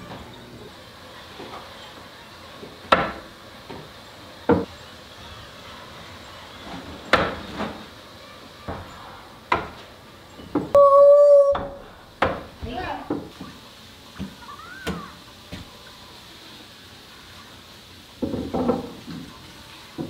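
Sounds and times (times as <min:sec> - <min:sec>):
short steady beep: 0:10.8 - 0:11.6.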